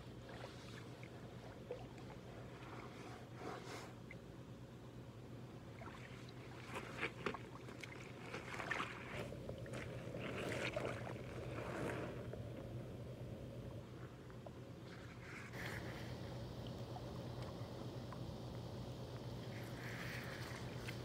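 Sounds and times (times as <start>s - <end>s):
mud squelching: 5.8s - 12.3s.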